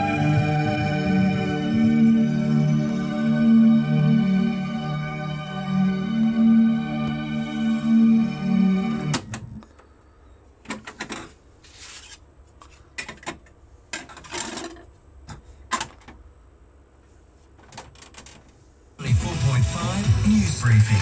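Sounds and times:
music from speakers: 0:00.0 - 0:09.2, 0:19.0 - 0:21.0.

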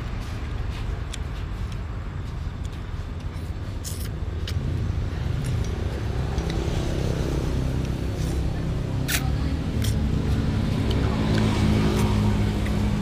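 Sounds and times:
vehicle engine rumble passing: 0:00.0 - 0:13.0.

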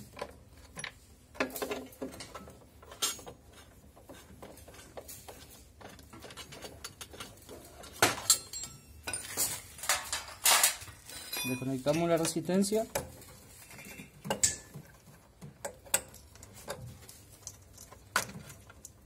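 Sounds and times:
metallic clinks and knocks of tools: 0:00.1 - 0:03.7, 0:04.6 - 0:19.0.

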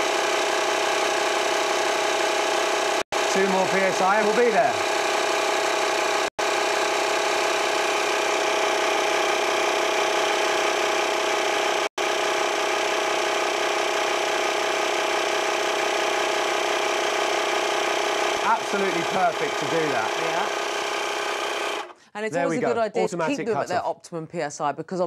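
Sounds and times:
air compressor running: 0:00.0 - 0:22.1.

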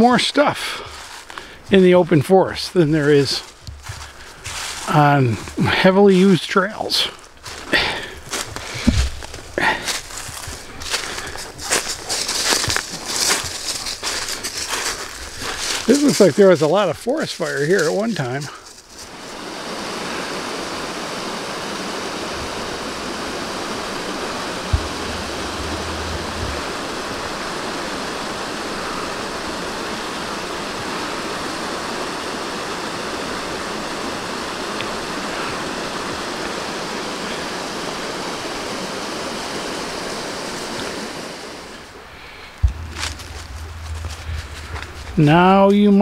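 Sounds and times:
stream rushing over rocks: 0:07.4 - 0:45.7
brief knock: 0:08.9 - 0:09.2.

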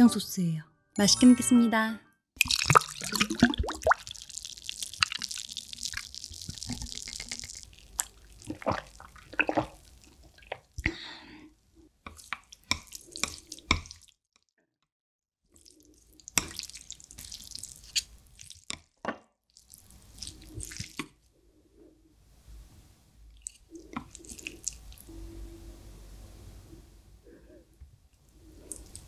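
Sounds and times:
chopsticks mixing saucy noodles: 0:16.2 - 0:18.6, 0:19.7 - 0:21.0, 0:23.4 - 0:25.1.

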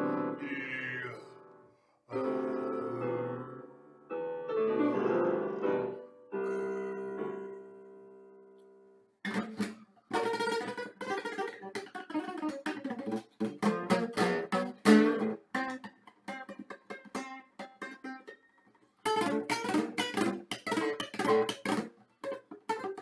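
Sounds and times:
classical guitar plucked notes: 0:00.0 - 0:00.4, 0:09.2 - 0:23.0
electronic keyboard piano chords: 0:00.0 - 0:00.6, 0:01.3 - 0:08.6.

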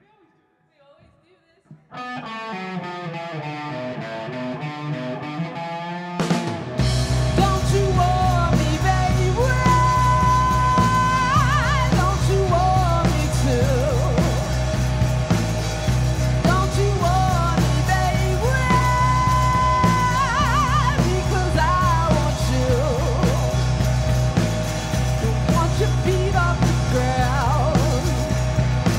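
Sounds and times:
electric guitar: 0:01.7 - 0:28.9
bass guitar: 0:02.0 - 0:28.9
drum kit beat: 0:06.2 - 0:28.9
woman singing with vibrato: 0:07.4 - 0:14.4, 0:16.4 - 0:23.6, 0:25.2 - 0:28.4.

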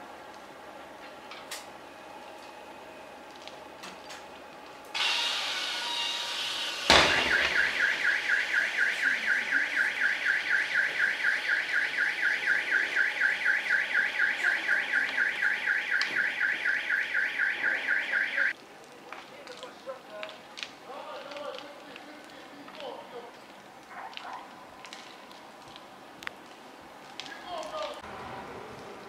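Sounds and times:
burning car hissing: 0:04.9 - 0:07.8
loud bang: 0:06.9 - 0:08.0
car alarm warbling: 0:06.9 - 0:18.5.

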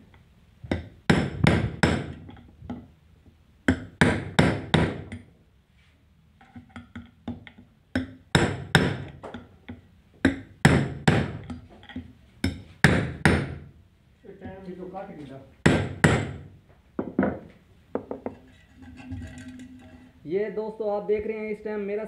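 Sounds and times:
hammer tapping steel rod: 0:03.7 - 0:05.3, 0:06.4 - 0:13.6.

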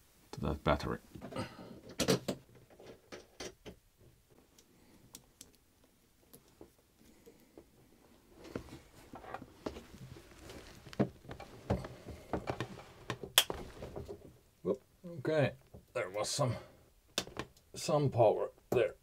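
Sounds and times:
soft rustling: 0:05.9 - 0:14.4.

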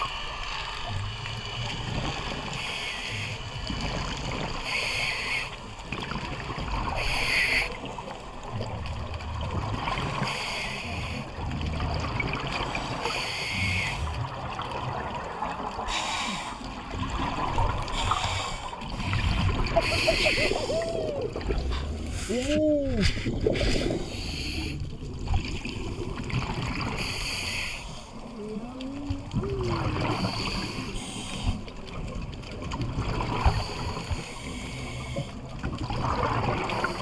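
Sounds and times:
exhaled bubbles rumbling: 0:05.7 - 0:10.4, 0:11.1 - 0:16.0, 0:16.6 - 0:27.4, 0:28.0 - 0:37.0.

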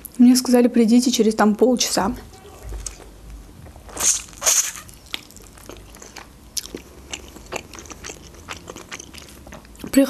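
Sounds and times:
fried dough crunching: 0:03.8 - 0:10.0
quiet chewing: 0:03.9 - 0:10.0.

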